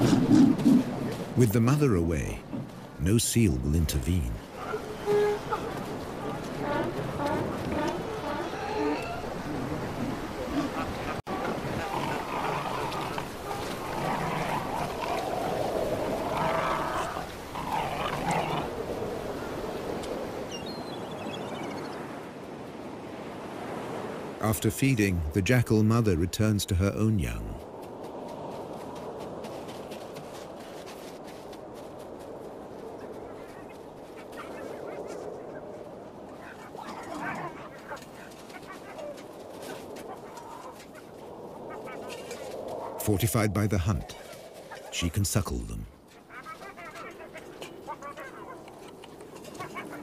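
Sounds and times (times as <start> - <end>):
surf washing: 0.0 - 50.0
jackals growling: 4.5 - 18.8, 33.3 - 43.0
animal squeals: 4.6 - 9.4.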